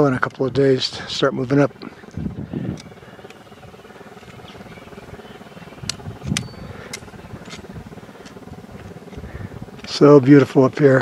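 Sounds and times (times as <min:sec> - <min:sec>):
wind buffeting microphone: 0:01.7 - 0:09.8
sharp clicks: 0:05.8 - 0:09.2.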